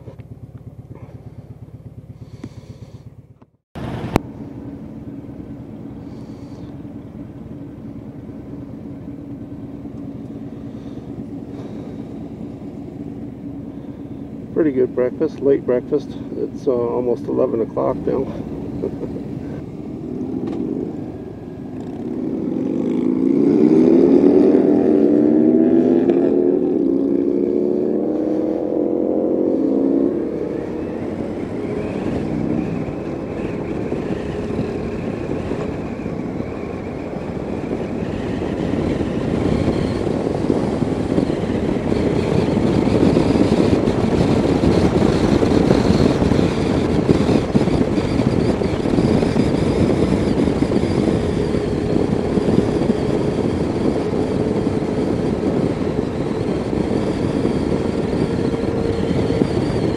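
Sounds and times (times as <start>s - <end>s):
motorcycle engine accelerating: 0.0s - 59.9s
wind rush: 10.2s - 59.9s.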